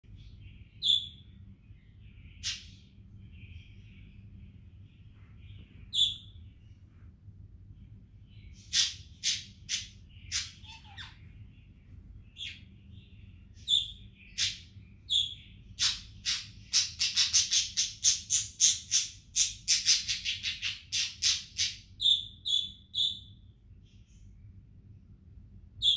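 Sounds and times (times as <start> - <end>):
budgerigar chirping: 0.8 - 1.2, 2.3 - 2.9, 5.9 - 6.4, 8.6 - 11.2, 13.6 - 23.4.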